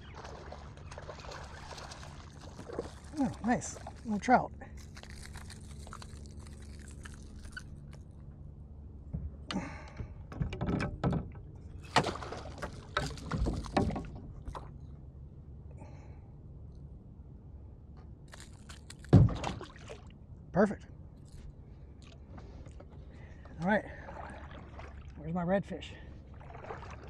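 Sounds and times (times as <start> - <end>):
water splashing: 0.0 - 8.0, 11.8 - 14.8, 18.4 - 20.1, 23.8 - 25.3, 26.2 - 27.0
knocks and clatters: 9.1 - 14.2
steady low rumble: 11.3 - 27.0.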